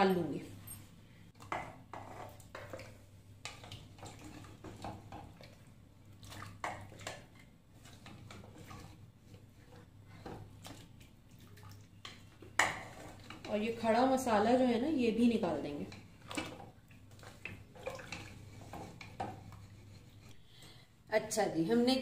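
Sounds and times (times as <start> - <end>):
liquid dripping and splashing: 2.3 - 13.6, 15.7 - 19.7
ladle knocking and scraping pot: 12.0 - 14.2, 15.8 - 20.4.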